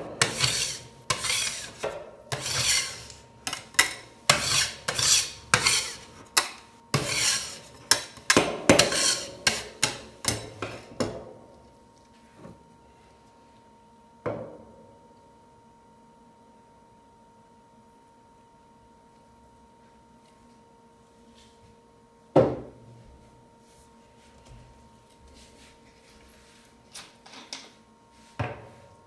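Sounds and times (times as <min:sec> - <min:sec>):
faint steady hum: 0:00.0 - 0:29.0
metal spatulas scraping steel plate: 0:00.1 - 0:10.9.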